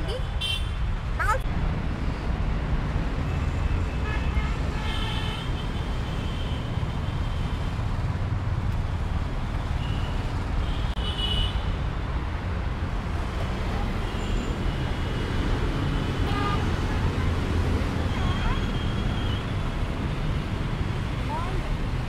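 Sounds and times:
road traffic rumble: 0.0 - 22.0
vehicle horn: 4.0 - 6.6.

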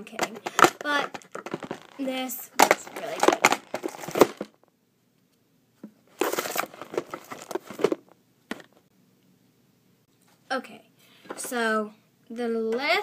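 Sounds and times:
rustling and crinkling: 0.0 - 4.6, 6.1 - 8.9.

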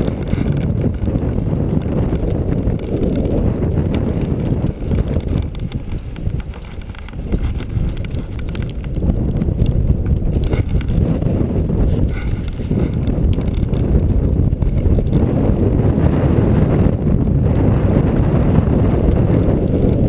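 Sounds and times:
gusting wind buffeting microphone: 0.0 - 20.0.

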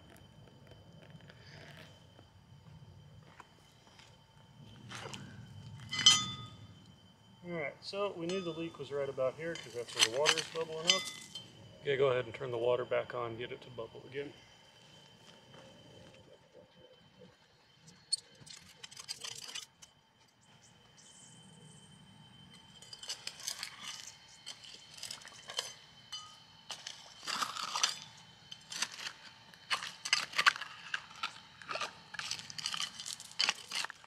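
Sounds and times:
trowel scraping gravel: 9.5 - 11.3, 26.7 - 34.0.

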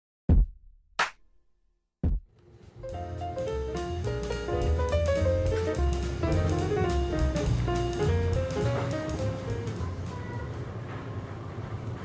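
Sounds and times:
drum machine kick: 0.3 - 1.2, 2.0 - 2.3, 2.9 - 9.7.

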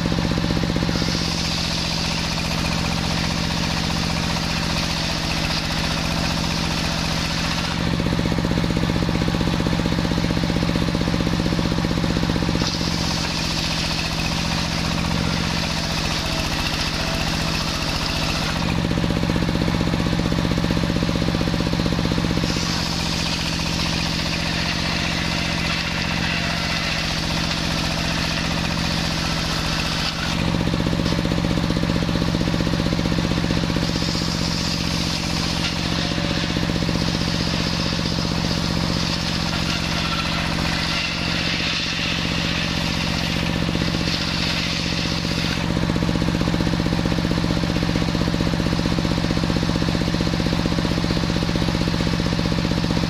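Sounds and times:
circular saw motor drone: 0.0 - 53.0
saw blade hissing in wood: 0.7 - 3.1, 22.4 - 31.3, 33.7 - 45.8.

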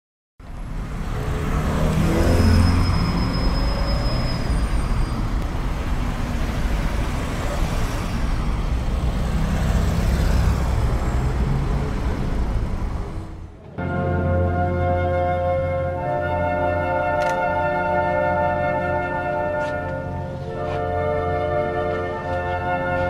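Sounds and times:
rumble of motor vehicles: 0.4 - 23.0
thin high whistle: 2.4 - 5.2.

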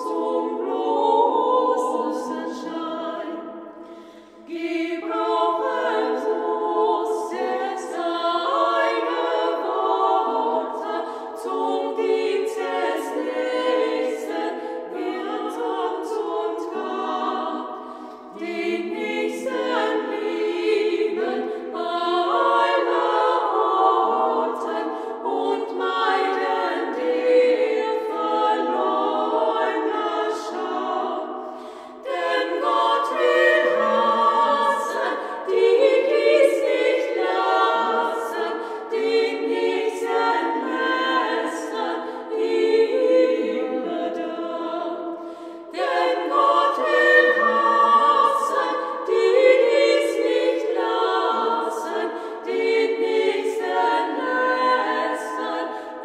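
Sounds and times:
voices singing a cappella carol: 0.0 - 56.0
singers breathing: 3.7 - 4.5, 11.0 - 11.4, 17.7 - 18.4, 24.9 - 25.2, 31.4 - 32.1, 38.6 - 38.9, 45.1 - 45.8.

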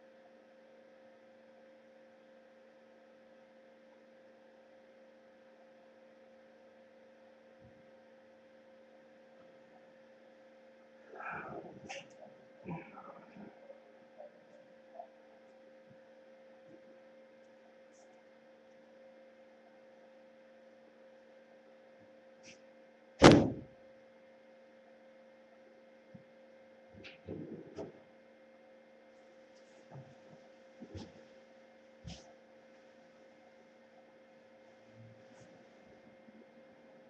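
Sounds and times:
steady electrical hum: 0.0 - 37.0
loud sharp thump: 23.2 - 23.7.

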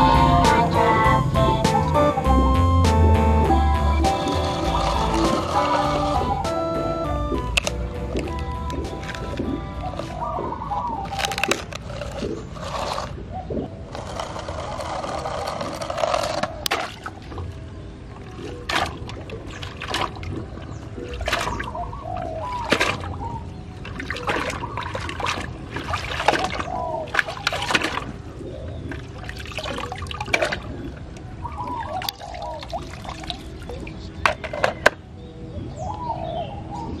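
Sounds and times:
toy truck splashing through water: 4.0 - 6.5.

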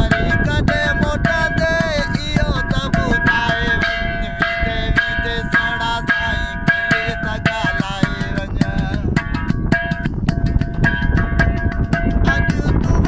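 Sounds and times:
man singing folk song: 0.0 - 9.3, 12.2 - 13.0
sharp rhythmic clicks: 0.0 - 13.0.

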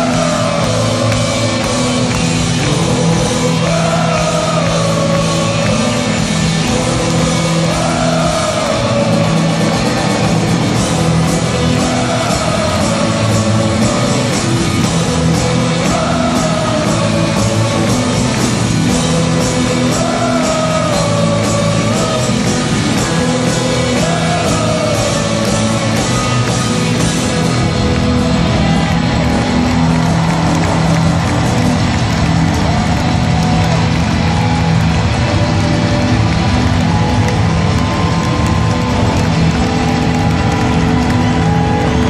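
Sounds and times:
drums keeping a steady beat: 0.0 - 42.0
electric guitars: 0.0 - 42.0
live rock band playing: 0.0 - 42.0
person singing: 11.5 - 27.1.

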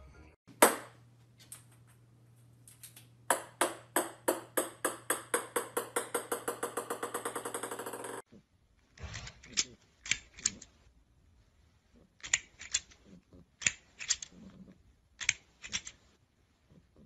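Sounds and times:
small ball bouncing on wooden floor: 0.5 - 2.0, 2.7 - 8.2.

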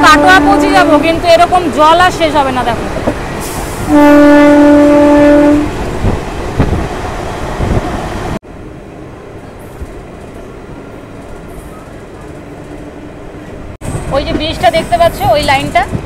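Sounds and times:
train horn blast: 0.0 - 1.2, 3.9 - 5.7
moving train rumble and clatter: 0.0 - 16.0.

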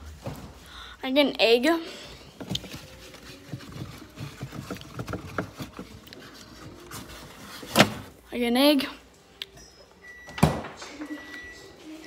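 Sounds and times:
items clicking on a fridge shelf: 2.3 - 8.1.

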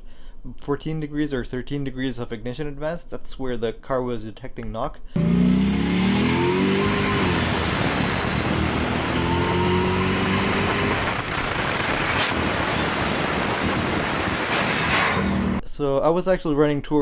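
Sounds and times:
car engine revving hard: 5.2 - 15.6.

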